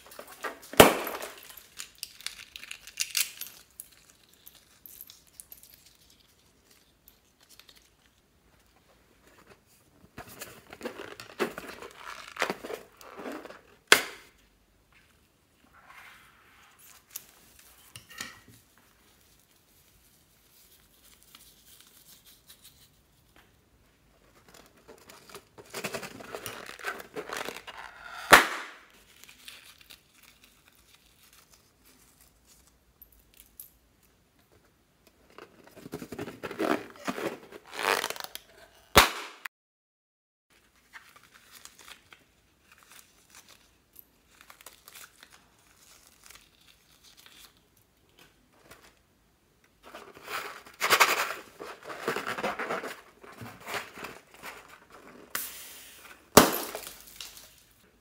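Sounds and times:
balloon snapping: 28.2 - 28.8
balloons rubbing and rustling: 35.8 - 38.3.

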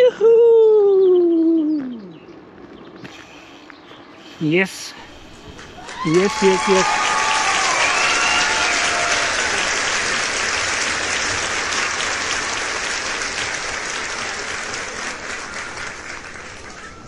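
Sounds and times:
crowd clapping: 5.5 - 17.0
crowd whooping: 5.5 - 17.0.

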